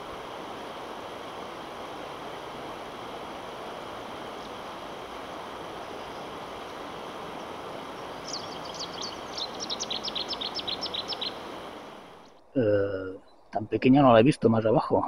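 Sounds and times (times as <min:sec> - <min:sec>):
river water running: 0:00.0 - 0:12.6
songbird chirping: 0:04.2 - 0:14.0.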